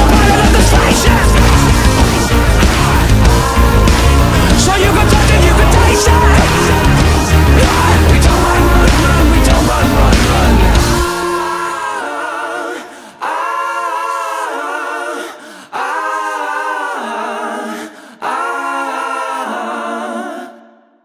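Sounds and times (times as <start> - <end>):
voices singing in harmony: 0.0 - 21.0.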